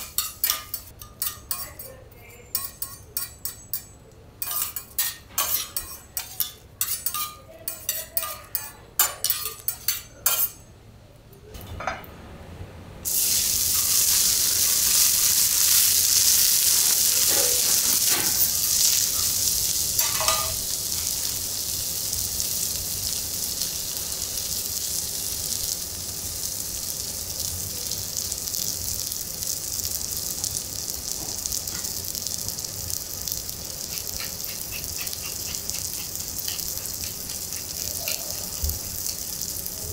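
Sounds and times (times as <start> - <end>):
meat sizzling on hot plate: 0.0 - 1.7, 4.4 - 10.5, 13.0 - 39.9
metal utensils clinking on griddle: 0.0 - 10.7, 13.1 - 21.4, 33.7 - 39.5.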